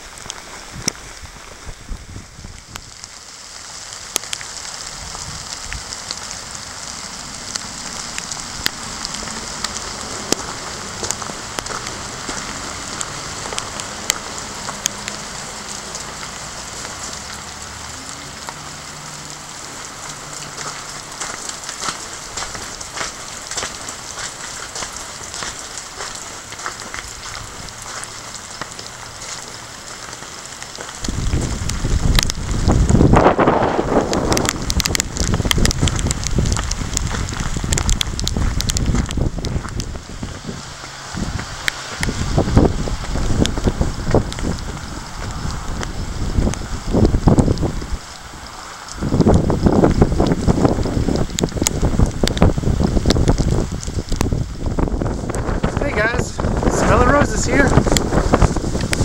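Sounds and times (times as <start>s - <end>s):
wind buffeting microphone: 0.0s - 3.1s, 4.6s - 15.3s, 30.0s - 59.0s
steady rain falling: 0.0s - 59.0s
raindrop taps on microphone: 7.5s - 48.0s, 48.8s - 59.0s.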